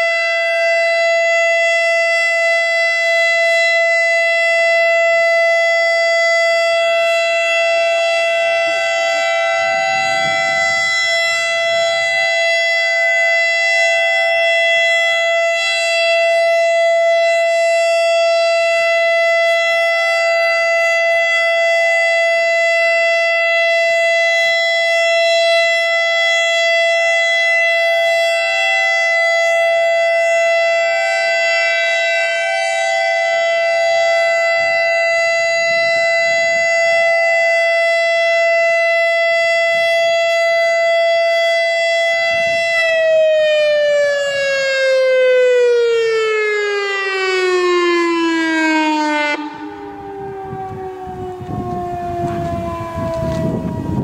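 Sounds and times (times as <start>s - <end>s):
warning siren steady tone: 0.0s - 54.0s.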